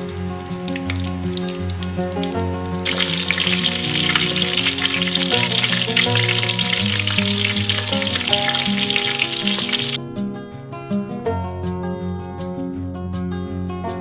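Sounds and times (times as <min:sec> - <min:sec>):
deep-frying crackling sizzle: 0:00.0 - 0:10.0
background music: 0:00.0 - 0:14.0.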